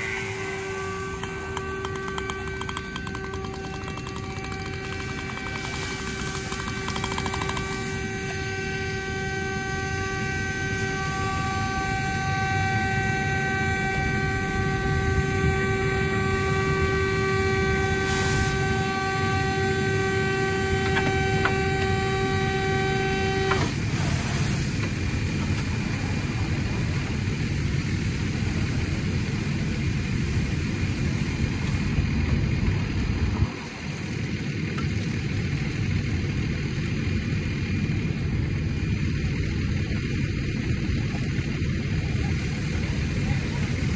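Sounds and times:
car horn steady tone: 0:00.0 - 0:24.1
steady rushing noise: 0:00.0 - 0:43.9.

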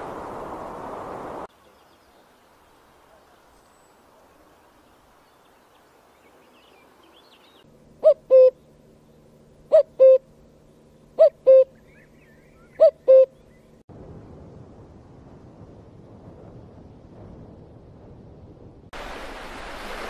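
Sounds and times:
faint chirping birdsong: 0:01.4 - 0:13.9
cuckoo calling: 0:08.0 - 0:08.7, 0:09.7 - 0:10.4, 0:11.0 - 0:13.7.

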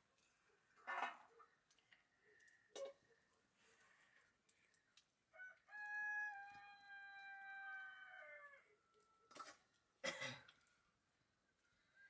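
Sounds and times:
rooster crowing: 0:05.4 - 0:09.3.

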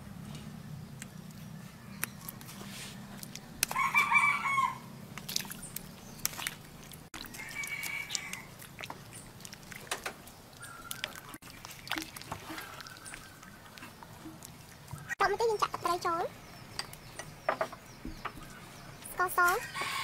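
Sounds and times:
chickens calling: 0:03.6 - 0:04.9, 0:07.2 - 0:09.4, 0:10.4 - 0:20.0.

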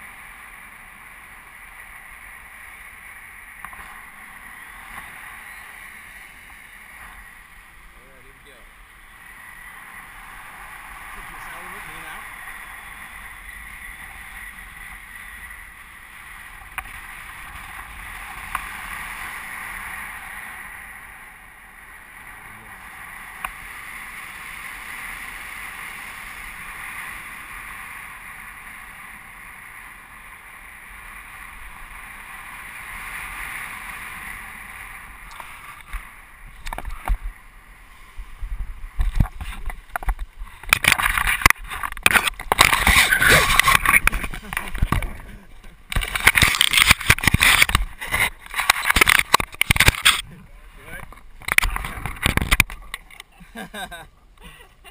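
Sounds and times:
wind buffeting and bumps: 0:03.5 - 0:54.4
wind rushing over microphone: 0:03.6 - 0:53.2
small clicks: 0:45.9 - 0:50.2.

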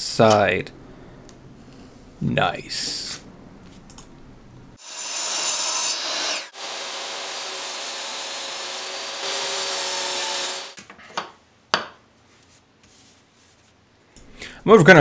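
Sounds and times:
table saw cutting wood: 0:04.8 - 0:10.8.

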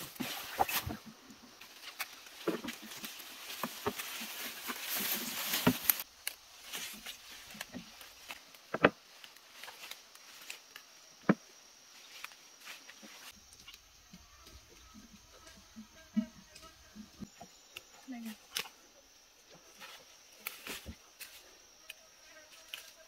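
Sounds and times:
footsteps: 0:00.0 - 0:10.6
undergrowth rustling: 0:00.0 - 0:23.0
twigs snapping: 0:00.2 - 0:11.4, 0:17.7 - 0:18.8.

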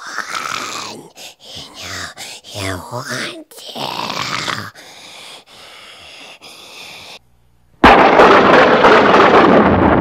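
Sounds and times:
quiet breathy noise: 0:00.0 - 0:07.3
explosion rumbling: 0:07.8 - 0:10.0.

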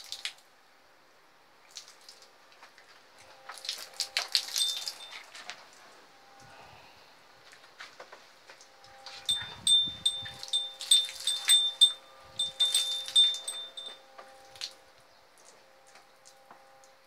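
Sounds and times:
small high-pitched bell ringing: 0:04.5 - 0:05.3, 0:09.3 - 0:14.1.

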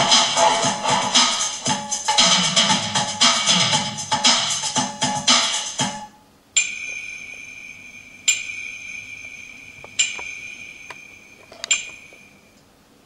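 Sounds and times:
bell-like chime tones: 0:06.6 - 0:12.5.

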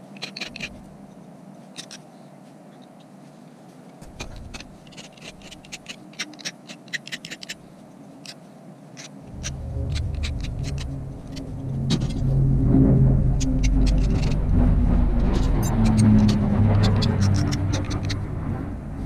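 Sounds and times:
hand tool scraping metal: 0:00.0 - 0:00.9, 0:04.0 - 0:07.6, 0:09.0 - 0:12.5, 0:13.2 - 0:14.5, 0:15.2 - 0:18.3
vehicle engine rumble: 0:09.2 - 0:19.0.

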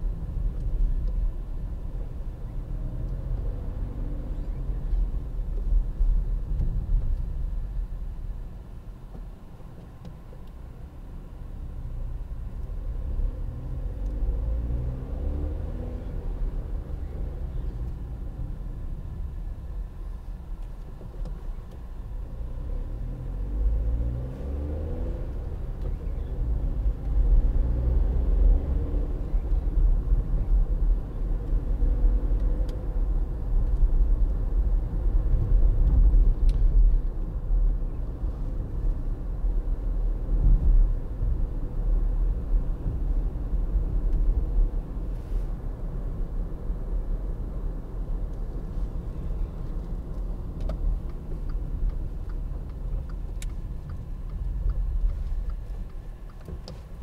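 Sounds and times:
road rumble: 0:00.0 - 0:57.0
car engine accelerating: 0:12.5 - 0:19.4, 0:22.2 - 0:57.0.

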